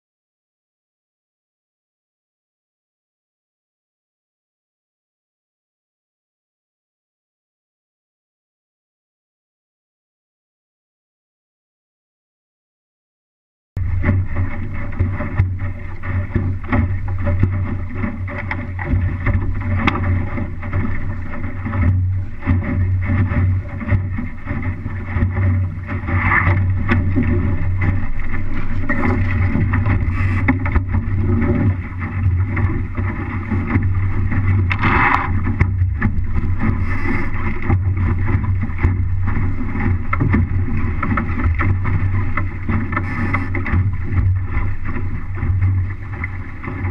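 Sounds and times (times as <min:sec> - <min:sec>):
water rushing along boat hull: 0:13.8 - 0:46.9
wind buffeting microphone: 0:13.8 - 0:46.9.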